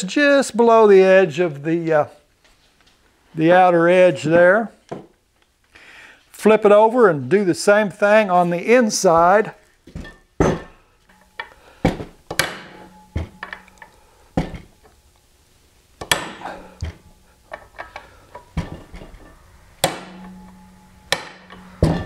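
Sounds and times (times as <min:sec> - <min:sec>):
hammer tapping metal: 0:10.4 - 0:14.8, 0:16.0 - 0:17.1, 0:19.8 - 0:22.0.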